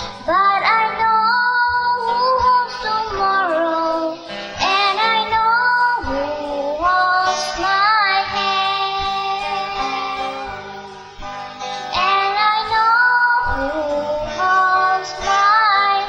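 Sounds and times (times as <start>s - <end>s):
girl singing slow song: 0.0s - 16.0s.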